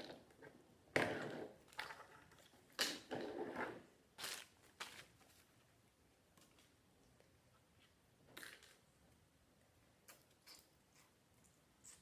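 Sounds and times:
plastic wrapping rustling and crinkling: 4.2 - 5.7.

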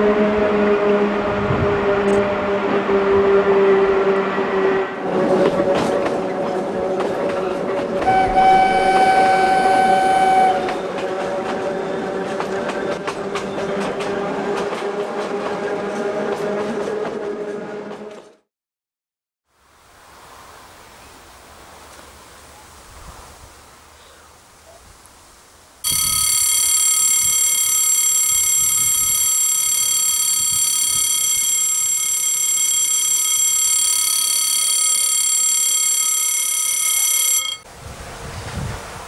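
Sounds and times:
level-crossing warning tone: 8.0 - 11.0, 25.8 - 37.7
faint wind hiss: 19.6 - 25.8.

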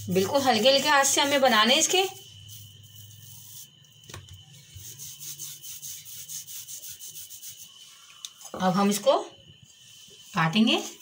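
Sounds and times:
rolling pin rolling dough: 0.0 - 7.8.

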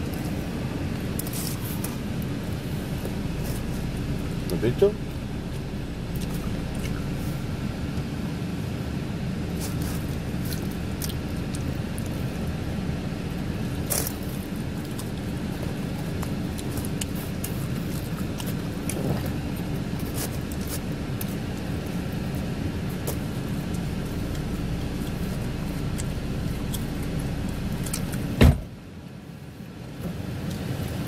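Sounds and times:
car engine idling: 0.0 - 30.8
person eating with small clicks: 6.1 - 7.0, 10.5 - 12.2, 13.8 - 22.4, 23.0 - 28.3.

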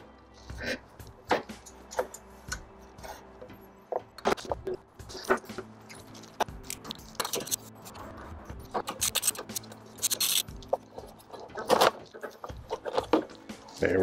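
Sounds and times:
socket wrench clicking and scraping: 8.6 - 13.3.

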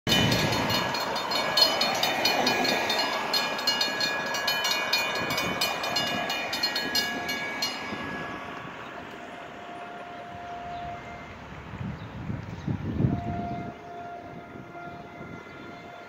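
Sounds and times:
railroad crossing bells clanging: 0.1 - 11.9, 12.7 - 16.0.

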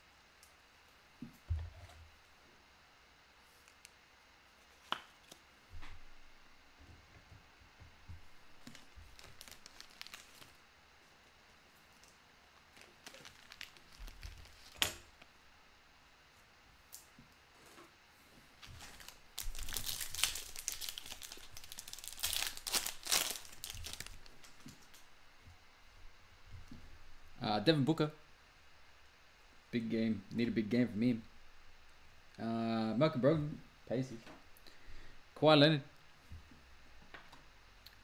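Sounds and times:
foil wrapper crinkling and tearing: 8.6 - 10.6, 12.6 - 14.8, 18.6 - 25.0.

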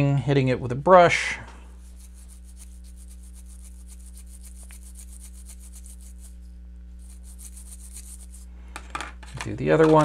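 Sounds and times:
electrical hum: 0.0 - 10.0
toothbrush scrubbing circuit board: 1.7 - 8.5.

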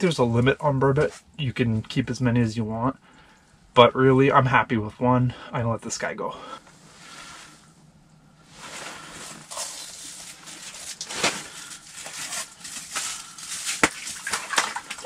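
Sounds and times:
rustling and scraping: 8.4 - 15.0.

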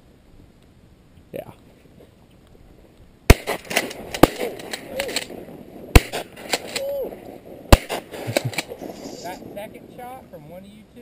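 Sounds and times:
distant shotgun shots: 3.3 - 6.8, 7.5 - 8.9
loud shotgun blasts: 3.3 - 6.8, 7.5 - 8.9.

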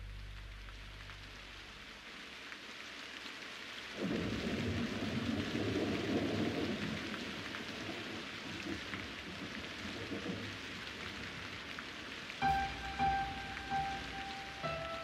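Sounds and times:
steady rain falling: 0.0 - 15.0
low rumble of thunder: 4.0 - 8.8
sustained musical note: 12.4 - 15.0.

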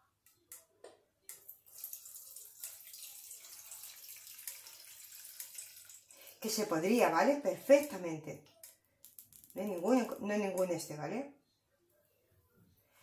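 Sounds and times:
oil trickling into metal bowl: 1.4 - 6.4.

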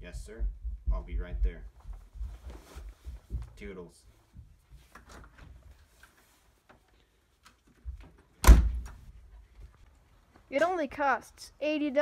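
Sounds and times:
faint footsteps: 0.0 - 8.1, 9.0 - 11.0
rustling: 1.7 - 10.8
door slamming shut: 8.4 - 9.0.

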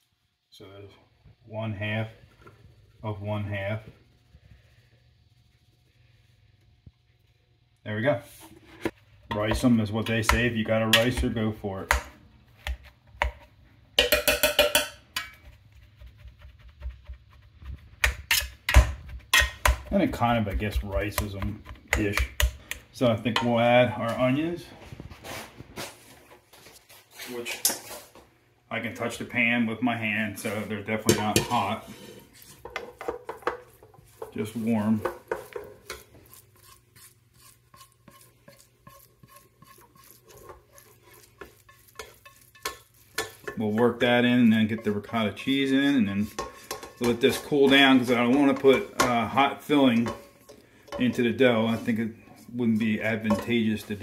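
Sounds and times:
spatula scraping frying pan: 8.3 - 22.8, 30.4 - 54.0
potato masher clanking on pot: 32.4 - 45.6, 46.2 - 49.2.

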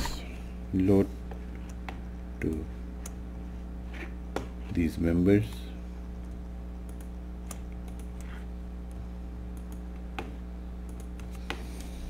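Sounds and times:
low electrical hum: 0.0 - 12.0
computer mouse clicking: 6.2 - 11.9.

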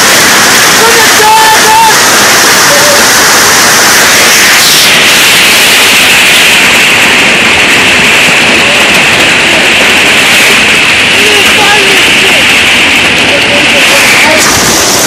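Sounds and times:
hail pounding a tin roof: 0.0 - 15.0.

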